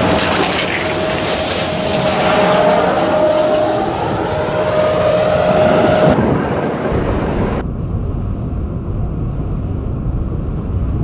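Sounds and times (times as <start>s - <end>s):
sweeper truck rumbling: 0.0s - 7.6s.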